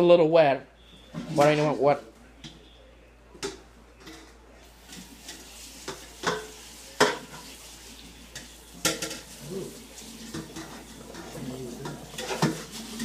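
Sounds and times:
dishes and cutlery clinking: 3.4 - 13.0.

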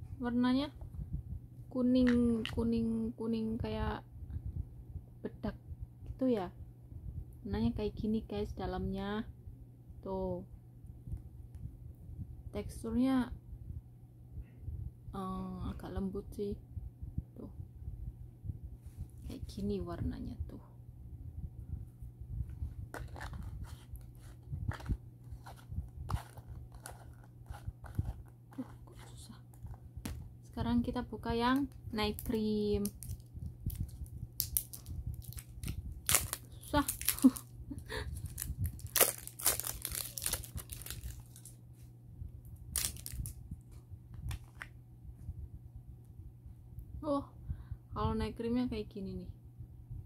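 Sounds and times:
plastic wrapping crinkling and tearing: 23.0 - 29.8, 31.6 - 41.6, 42.7 - 43.4.

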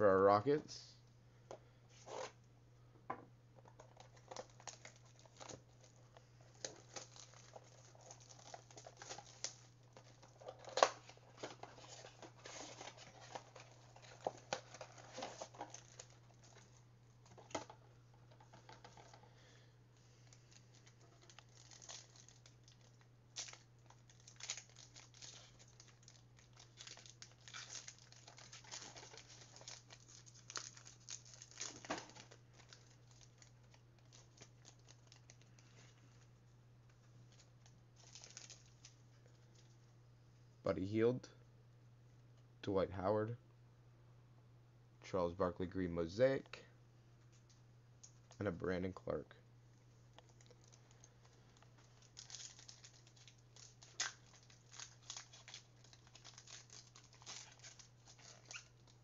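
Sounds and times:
low steady hum: 0.0 - 59.0
card packs torn and crinkled: 3.8 - 17.7, 20.2 - 35.8, 37.3 - 39.0, 50.2 - 59.0.

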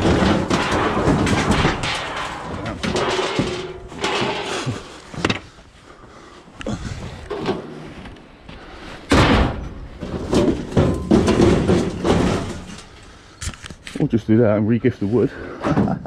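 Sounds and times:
loud metal bang: 0.0 - 4.9, 9.1 - 12.8
metal frame clanking: 0.0 - 5.5, 9.0 - 13.9.

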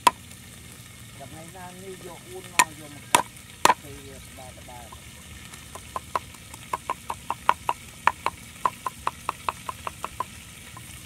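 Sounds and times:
cleaver chopping on wooden block: 2.6 - 3.8, 5.7 - 10.8.

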